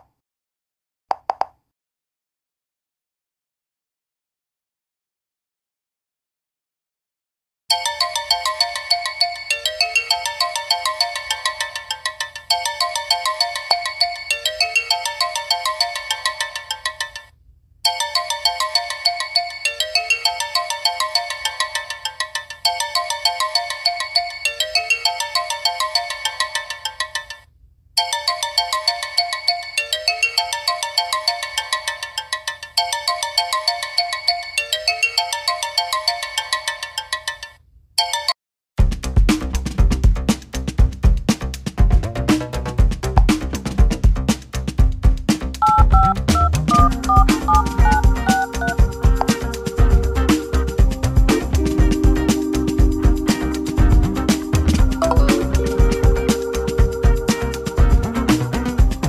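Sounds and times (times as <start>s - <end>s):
phone ringtone melody: 7.7s - 17.3s, 17.9s - 27.4s, 45.6s - 50.8s, 55.0s - 57.8s.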